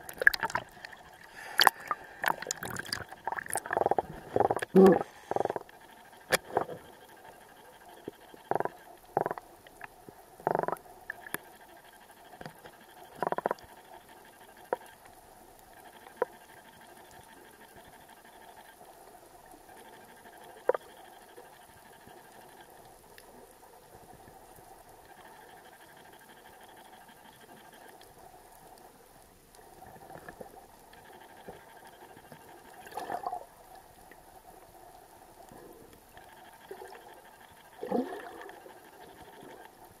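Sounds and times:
muffled water sloshes: 0.0s - 4.5s
faint steady hiss: 0.0s - 40.0s.

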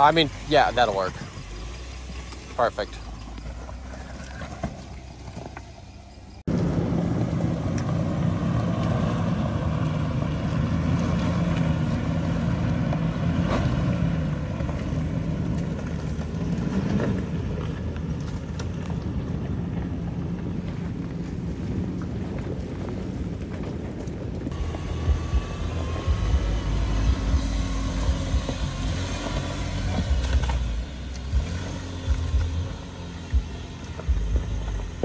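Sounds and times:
engine droning on trail: 0.0s - 35.0s
engine running low: 0.0s - 35.0s
wind: 0.0s - 35.0s
tyres on rocks: 1.2s - 6.4s.

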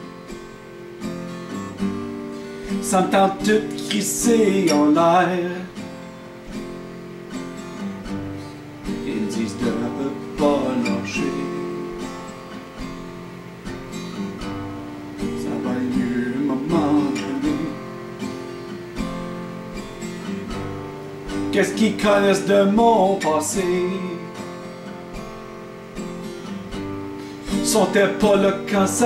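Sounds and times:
acoustic guitar strumming: 0.0s - 29.0s
man singing: 2.7s - 5.8s, 8.9s - 12.3s, 15.2s - 18.0s, 21.4s - 24.6s, 27.5s - 29.0s.

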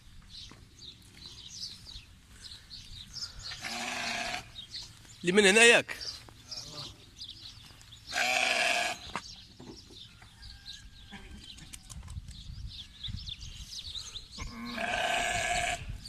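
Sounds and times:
young sheep bleating: 3.6s - 4.6s, 8.1s - 9.1s, 14.4s - 16.0s.

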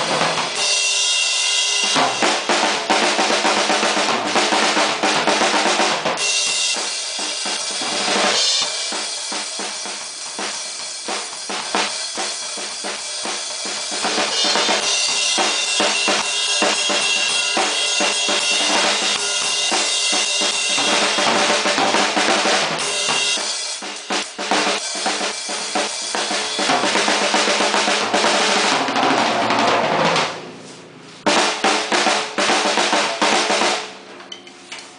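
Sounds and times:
cymbals washing: 0.0s - 3.0s, 6.2s - 28.4s
acoustic drum kit played hard: 0.0s - 34.2s.

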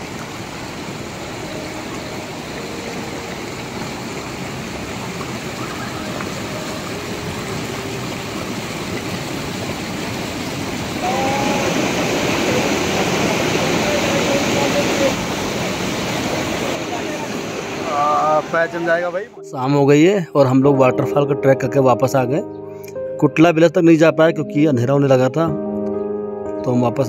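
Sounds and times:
stream rushing over rocks: 0.0s - 19.4s.

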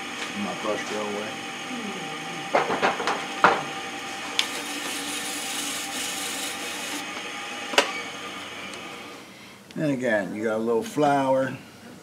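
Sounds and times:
lathe humming: 0.0s - 9.3s
brush scrubbing wood: 4.4s - 7.0s.

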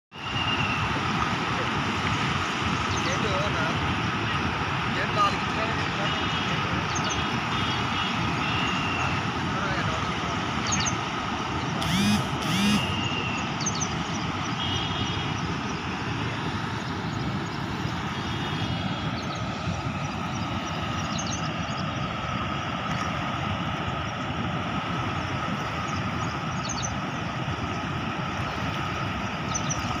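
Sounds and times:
floodwater roaring through spillway: 0.2s - 30.0s
short pitched sounds: 11.8s - 13.1s.

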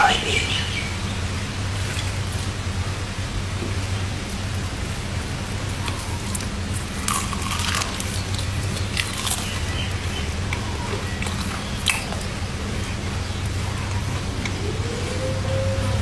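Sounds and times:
steady low hum: 0.0s - 16.0s
fried chicken crunching: 5.8s - 12.4s.

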